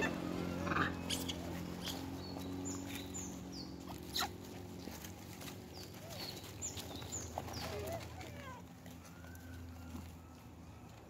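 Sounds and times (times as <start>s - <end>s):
animal chirps and squeaks: 0.5s - 4.6s.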